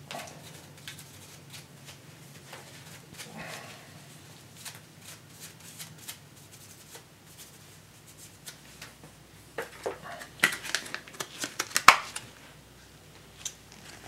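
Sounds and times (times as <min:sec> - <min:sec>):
plastic clicks and crinkles: 0:09.6 - 0:12.4.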